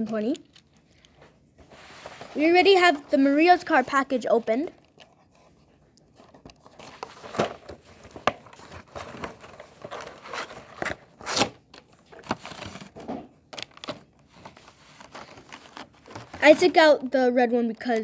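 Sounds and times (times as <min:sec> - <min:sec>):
packaging crinkling: 0:06.1 - 0:16.5.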